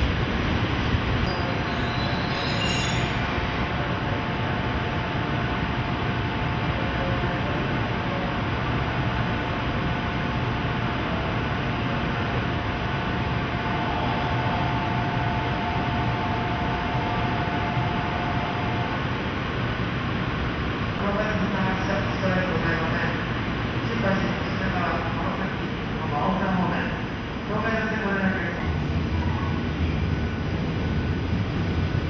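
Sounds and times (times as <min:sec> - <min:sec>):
electric locomotive humming: 0:00.0 - 0:32.0.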